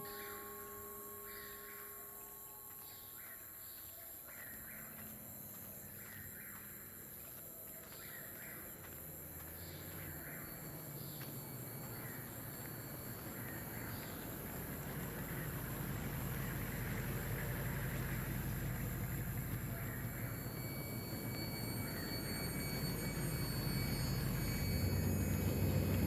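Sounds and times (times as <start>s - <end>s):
low hum: 8.4s - 26.0s.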